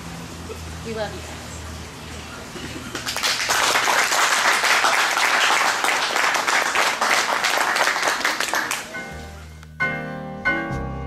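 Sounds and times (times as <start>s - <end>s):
people applauding: 2.8s - 9.0s.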